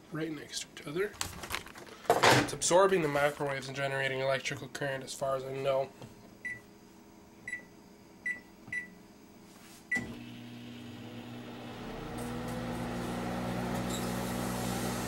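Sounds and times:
microwave oven humming: 9.9 - 15.0.

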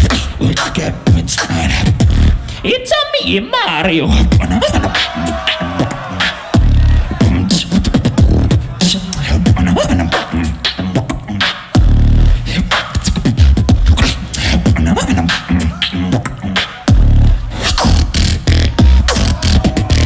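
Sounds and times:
heavy bass drops: 0.0 - 2.4, 4.1 - 10.5, 11.8 - 12.5, 16.9 - 20.0
gliding vocal tones: 0.0 - 2.8, 3.7 - 20.0
beatboxing into a microphone: 0.0 - 20.0.

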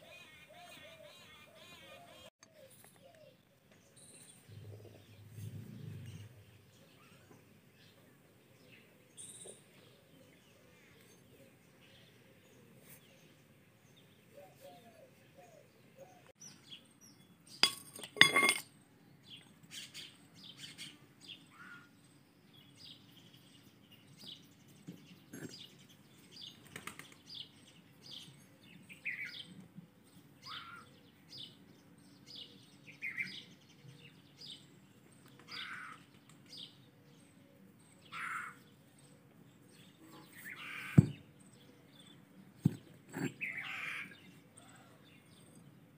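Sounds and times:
small birds chirping: 0.0 - 45.9
metal clinking against metal: 17.6 - 18.7.

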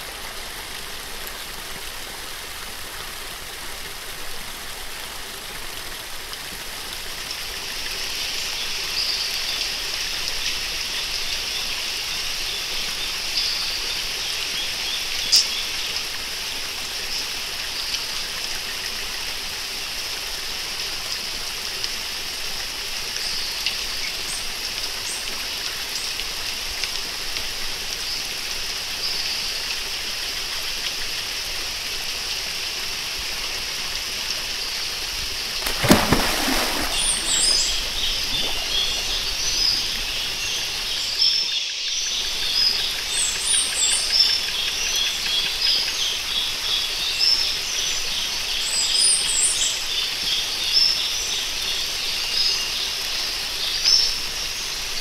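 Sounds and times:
waterfall rushing: 35.6 - 41.3.

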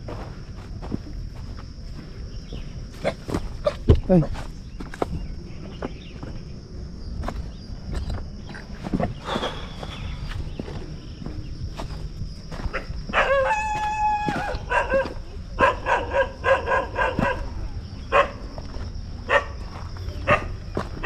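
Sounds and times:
dog barking: 12.7 - 13.6, 14.4 - 18.5, 19.2 - 20.7
dog howling: 12.7 - 18.4.

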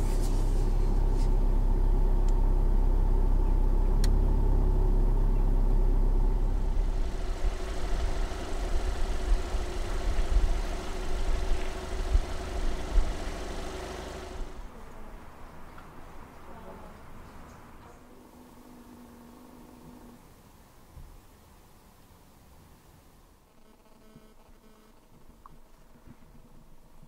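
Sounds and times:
diesel engine running low revs: 0.0 - 20.3.

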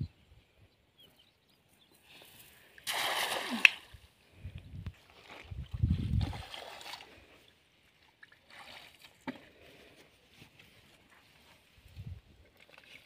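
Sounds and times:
net splashing into water: 2.8 - 4.0.

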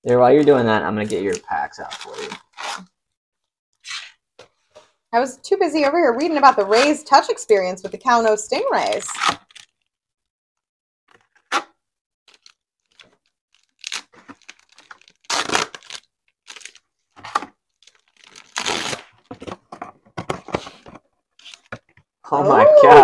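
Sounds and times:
wrapper tearing and crinkling: 0.4 - 2.9, 8.9 - 9.9, 12.3 - 19.4.

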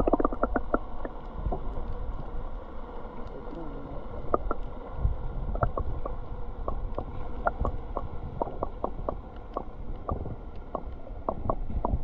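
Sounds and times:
water lapping against kayak hull: 0.0 - 2.4, 3.0 - 12.0.

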